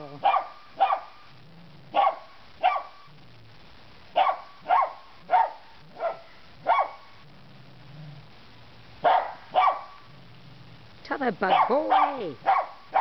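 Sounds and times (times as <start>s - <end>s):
dog barking: 0.2s - 1.2s, 1.9s - 3.1s, 4.1s - 7.2s, 9.0s - 10.1s, 11.5s - 13.0s.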